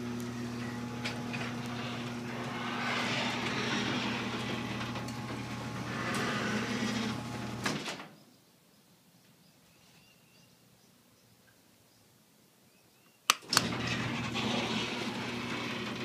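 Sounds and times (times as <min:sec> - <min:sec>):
garage door opener motor hum: 0:00.0 - 0:07.9, 0:13.4 - 0:16.0
door rolling up: 0:00.0 - 0:08.1, 0:13.4 - 0:16.0
garage door clunk: 0:01.0 - 0:08.2, 0:13.4 - 0:16.0.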